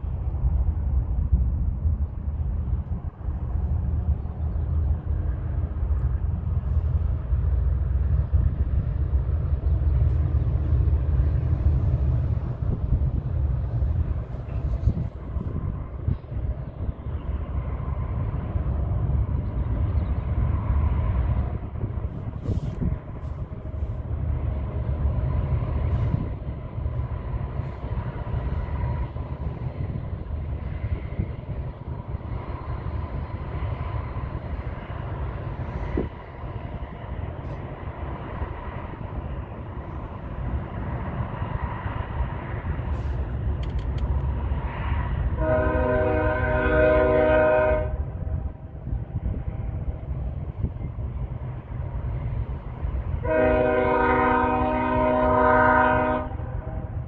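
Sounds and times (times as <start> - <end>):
distant diesel locomotives rumbling: 0.0 - 57.0
locomotive air horn: 45.4 - 48.0, 53.2 - 56.6.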